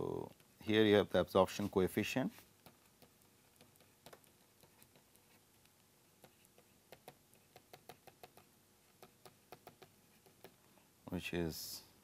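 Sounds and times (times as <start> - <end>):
stylus tapping on pen tablet: 2.6 - 10.6.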